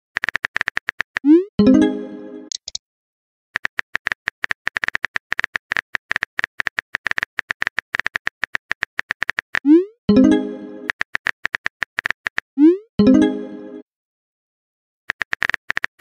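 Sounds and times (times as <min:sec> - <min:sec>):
pitched alert tone: 0:01.3 - 0:02.5, 0:09.7 - 0:10.9, 0:12.6 - 0:13.8.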